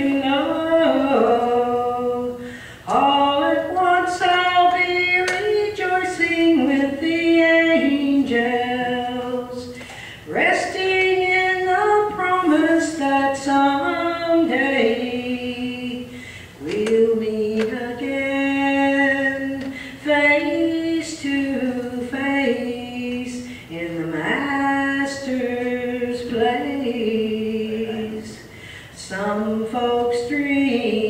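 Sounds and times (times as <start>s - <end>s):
woman singing gospel song: 0.0s - 31.0s
singer breathing: 2.4s - 2.9s, 9.7s - 10.3s, 16.1s - 16.6s, 19.7s - 20.0s, 23.4s - 23.7s, 28.4s - 29.0s.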